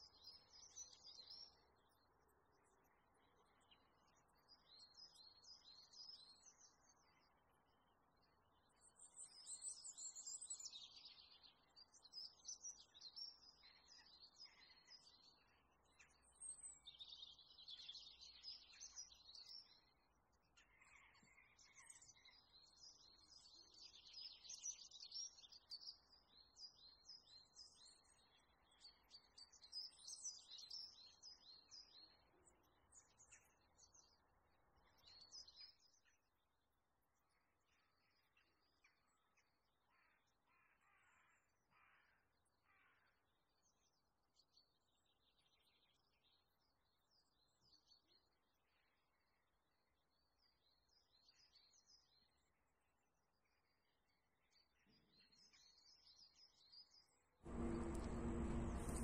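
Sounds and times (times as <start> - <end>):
faint birdsong chirps: 0.0 - 59.0
faint outdoor hiss: 57.5 - 59.0.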